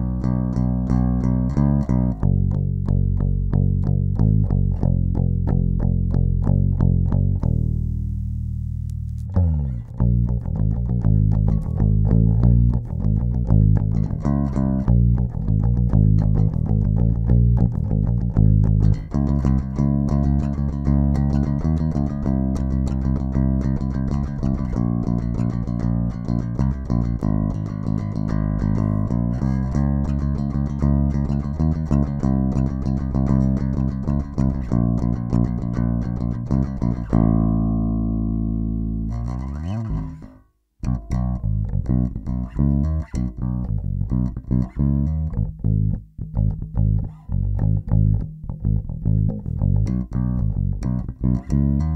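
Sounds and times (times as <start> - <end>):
electric bass plucked notes: 0.0 - 51.9.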